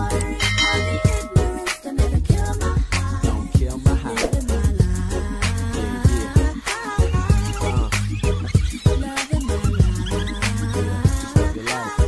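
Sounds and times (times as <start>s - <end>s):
music with drum beat and bass: 0.0s - 12.0s.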